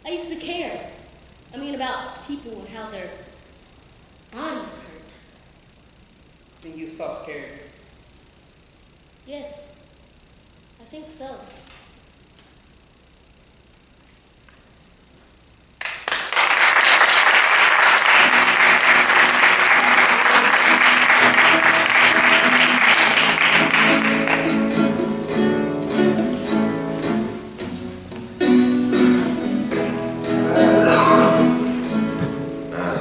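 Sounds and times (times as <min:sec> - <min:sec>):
audience applause: 0:15.8 - 0:25.0
music: 0:18.1 - 0:33.0.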